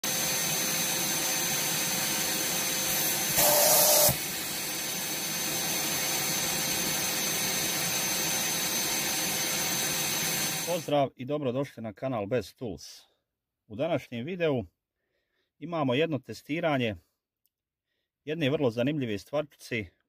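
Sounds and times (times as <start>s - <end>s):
vacuum cleaner running: 0.0s - 10.9s.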